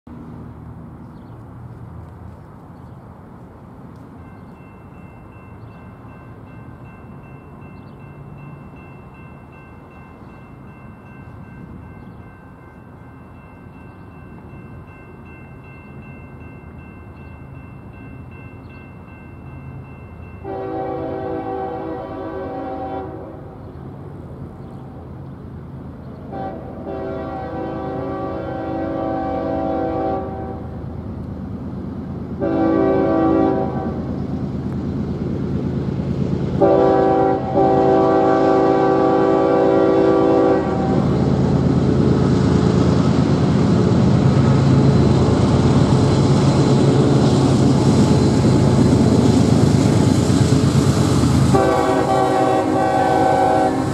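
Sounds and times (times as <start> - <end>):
train wheels rumbling on rails: 0.1 - 53.9
train horn blasts: 20.4 - 23.6, 26.3 - 30.8, 32.4 - 34.1, 36.6 - 41.2, 51.4 - 53.9.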